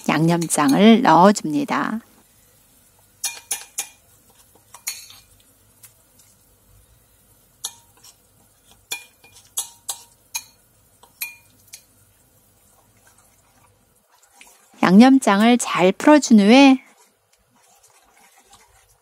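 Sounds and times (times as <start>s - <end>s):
metal spoon scraping bowl: 16.8s - 19.0s.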